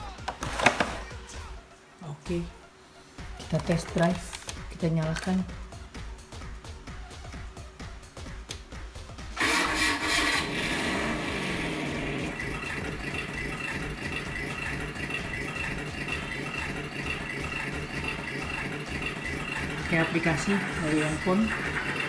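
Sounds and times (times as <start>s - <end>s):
toy engine sound effect: 9.4s - 22.0s.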